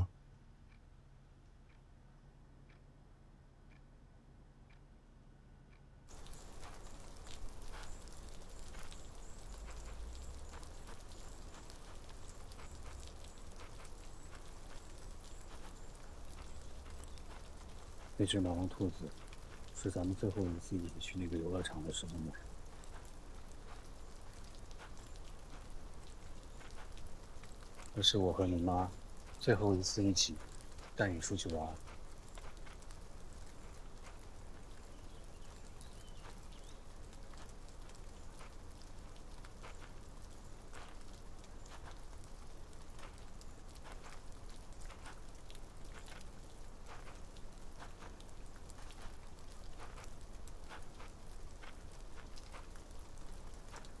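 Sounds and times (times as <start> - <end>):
faint taps of raindrops: 0.0 - 1.9, 5.7 - 54.0
light rain falling: 0.0 - 2.7, 6.1 - 54.0.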